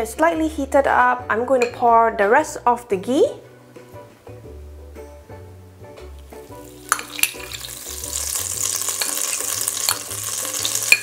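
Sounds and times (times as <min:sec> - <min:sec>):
soft background music: 0:00.0 - 0:11.0
ghee sizzling in a pot: 0:06.1 - 0:11.0.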